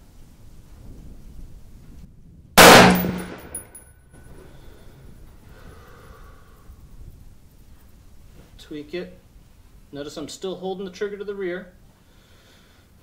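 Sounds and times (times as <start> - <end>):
rifle shot: 2.6 - 3.7
faint ringing: 2.7 - 4.0.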